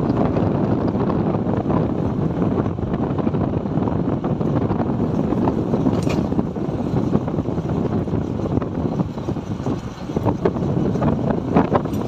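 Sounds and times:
road and engine rumble: 0.0s - 12.0s
wind buffeting microphone: 0.0s - 12.0s.

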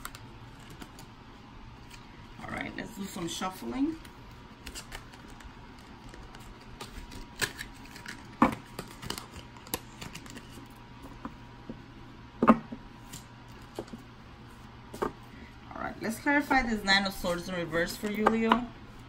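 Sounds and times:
cards being shuffled: 3.9s - 10.8s.

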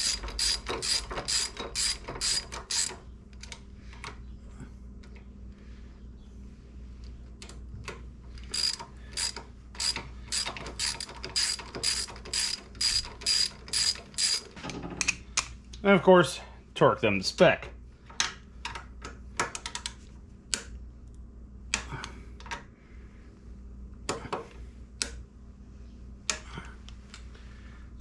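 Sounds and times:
hand ratchet clicking: 0.0s - 3.0s, 8.4s - 14.6s.

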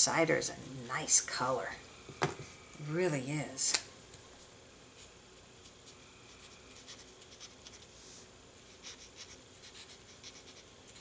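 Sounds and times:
marker tip scratching on card: 5.6s - 8.0s, 8.7s - 11.0s.

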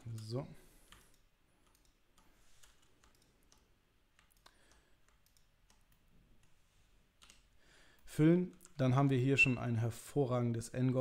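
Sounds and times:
mouse and keyboard clicks: 0.9s - 6.6s.

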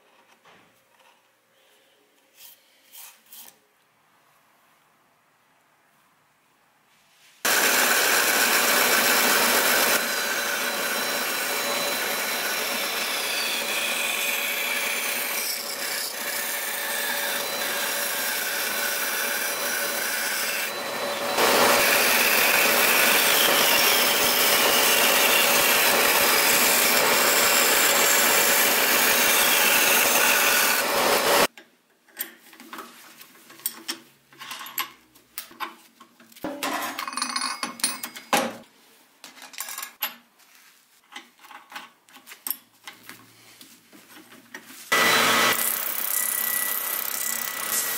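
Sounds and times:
bandsaw cutting wood: 7.5s - 31.5s, 44.9s - 47.9s.

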